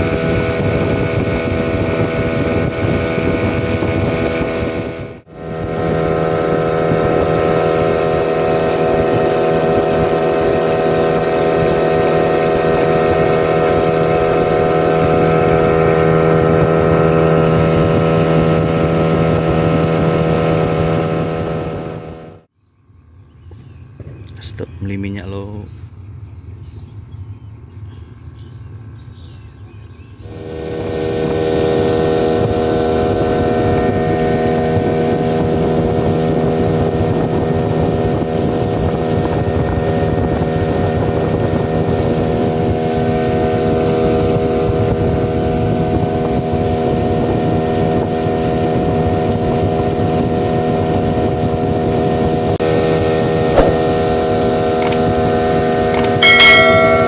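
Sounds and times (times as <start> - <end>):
outboard motor running: 0.0 - 22.5, 30.2 - 57.0
water rushing past hull: 53.4 - 55.0.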